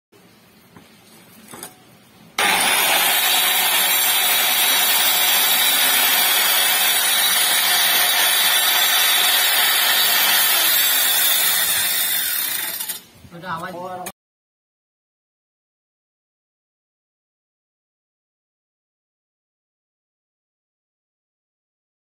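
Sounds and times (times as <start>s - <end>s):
electric tile cutter cutting tile: 2.4s - 13.0s.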